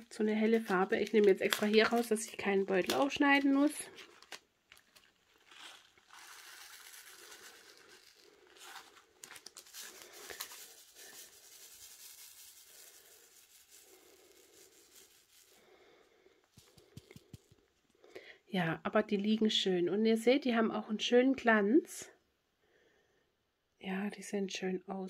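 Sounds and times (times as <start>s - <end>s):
plastic bag crinkling: 0.0s - 17.6s
small acrylic beads rattling: 4.0s - 15.6s.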